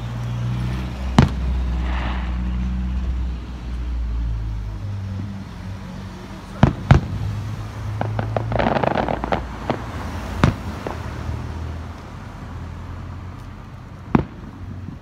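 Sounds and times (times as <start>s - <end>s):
fireworks crackling: 0.4s - 3.3s, 6.5s - 12.1s
fireworks booms: 1.1s - 3.0s, 8.0s - 11.2s, 14.1s - 14.9s
small fireworks pops: 1.2s - 2.5s, 8.0s - 11.2s, 13.3s - 15.0s.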